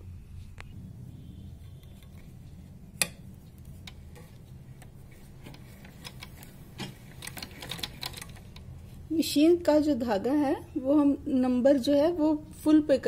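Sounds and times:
sewing machine clicking: 3.9s - 8.7s.

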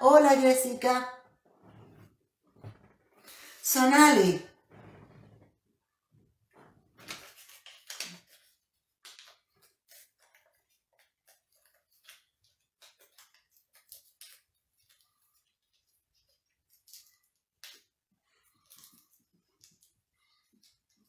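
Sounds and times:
paper crinkling and rustling: 6.9s - 21.0s.

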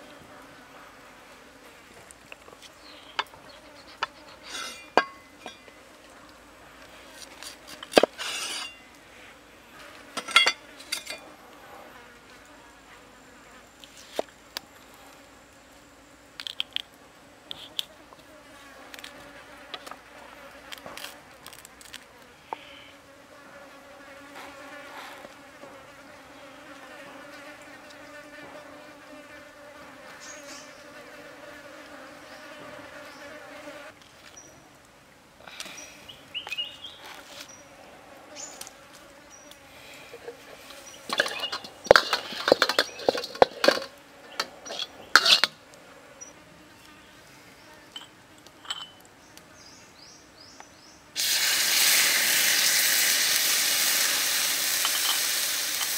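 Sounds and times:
flying insects buzzing: 0.0s - 34.7s, 35.4s - 55.9s
broccoli stem crunching: 20.8s - 22.1s.

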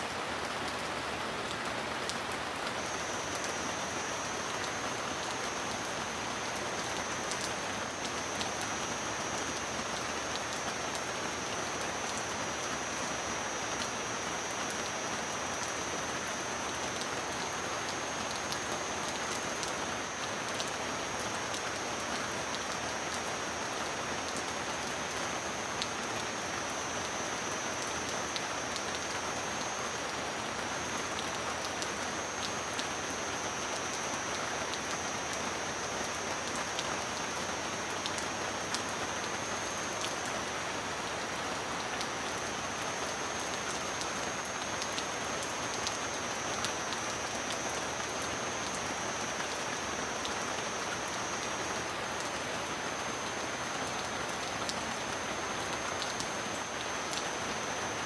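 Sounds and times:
sharp raindrop ticks: 13.7s - 21.8s.

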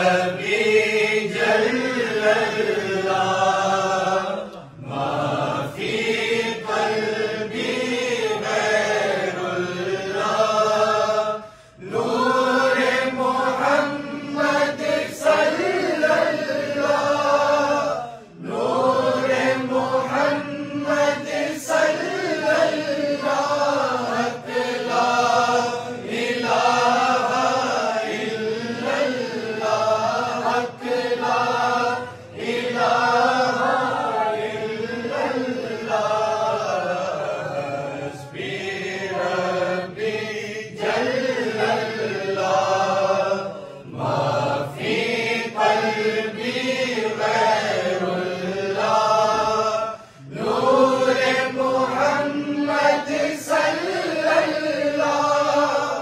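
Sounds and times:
group chanting in unison: 0.0s - 56.0s.

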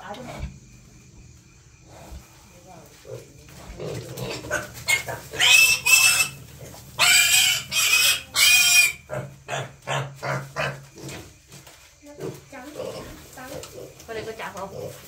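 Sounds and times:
pigs grunting: 3.0s - 11.5s, 12.1s - 15.0s
pigs squealing: 3.8s - 11.3s.

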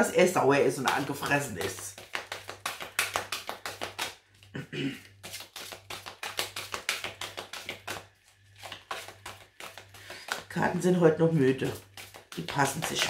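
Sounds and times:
cards being shuffled: 0.3s - 13.0s.

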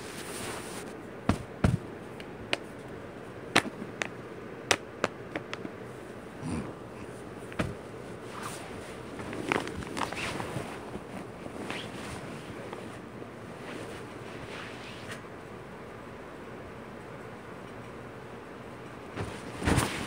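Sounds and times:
steady background hiss: 0.0s - 20.0s
dull thuds: 1.2s - 1.9s, 7.5s - 7.9s.

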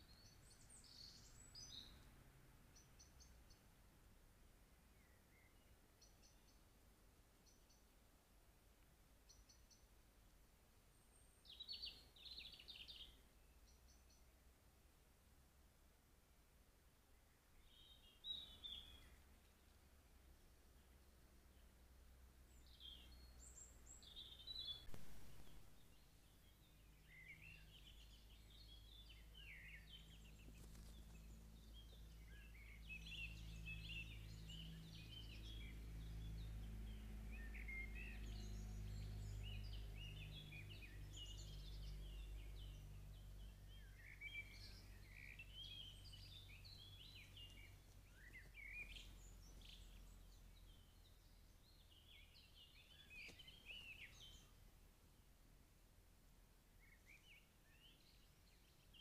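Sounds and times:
faint songbirds singing: 0.0s - 59.0s
low distant hum: 13.2s - 57.0s.

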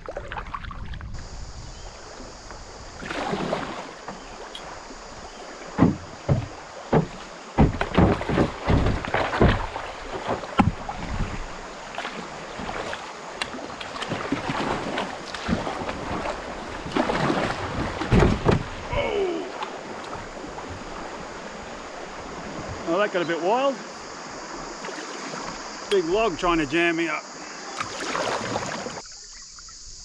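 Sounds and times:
paddle strokes splashing: 0.0s - 29.4s
rush of moving water: 0.0s - 29.5s
sharp knocks and splashes: 2.4s - 22.8s, 24.4s - 26.1s, 27.6s - 29.1s.

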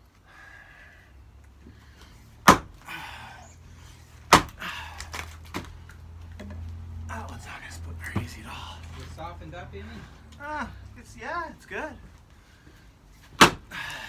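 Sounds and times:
axe striking log: 2.4s - 2.8s, 4.3s - 4.6s, 13.4s - 13.7s.

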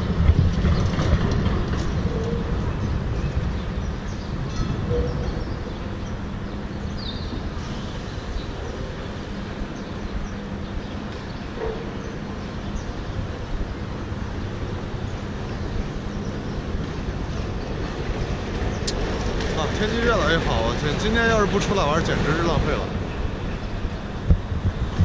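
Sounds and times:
traffic rumble: 0.0s - 25.0s.

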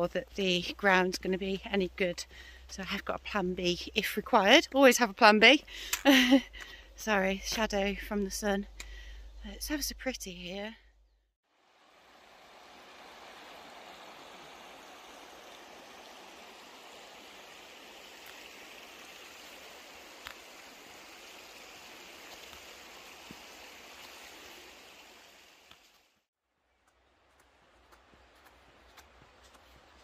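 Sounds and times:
river water rushing: 11.5s - 25.7s.

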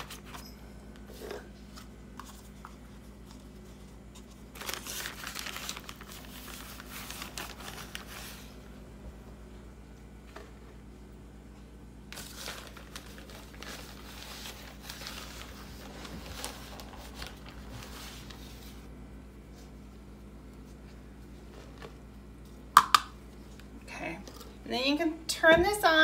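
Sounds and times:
paper bag rustling: 0.0s - 0.4s, 1.2s - 8.7s, 12.1s - 18.9s.

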